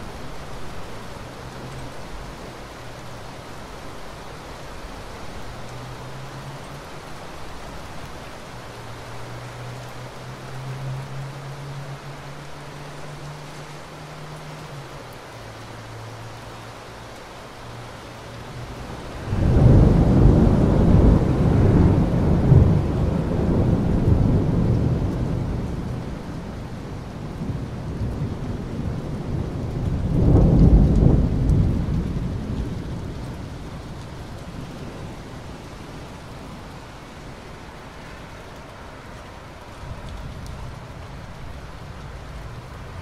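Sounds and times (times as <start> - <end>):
steady rain: 0.0 - 43.0
thunder rumbling: 18.6 - 36.1.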